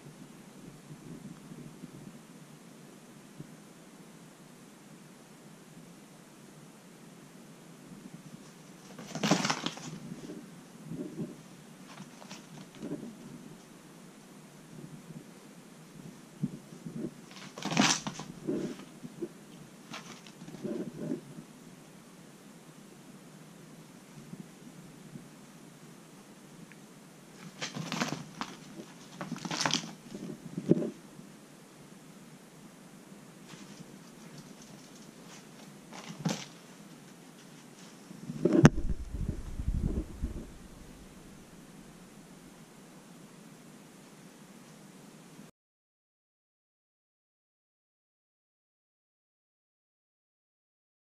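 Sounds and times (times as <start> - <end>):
rustling scuffle: 8.3 - 13.7, 16.9 - 19.2, 19.8 - 21.2, 27.4 - 31.0, 33.4 - 41.7
kitten paws scampering on mats: 27.4 - 30.3
low thumps: 38.6 - 41.6.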